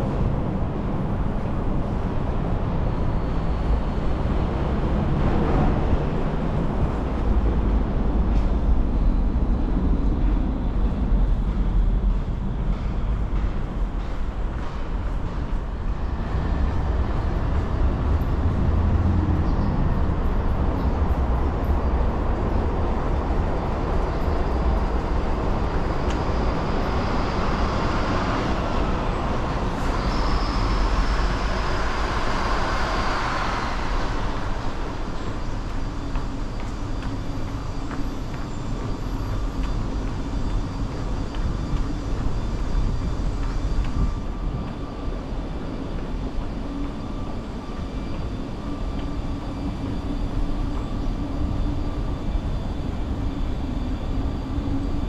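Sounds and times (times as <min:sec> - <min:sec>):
passing vehicles rumbling: 0:00.0 - 0:50.3.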